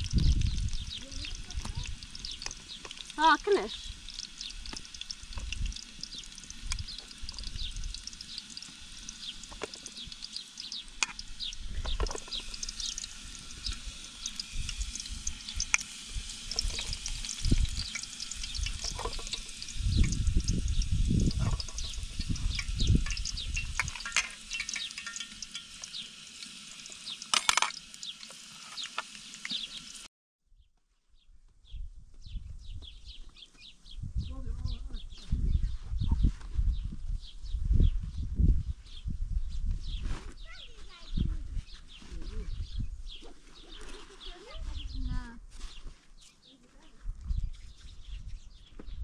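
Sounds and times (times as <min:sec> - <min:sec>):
vegetables sizzling in hot oil: 0:00.0 - 0:30.1
dull low bumps: 0:16.2 - 0:24.0.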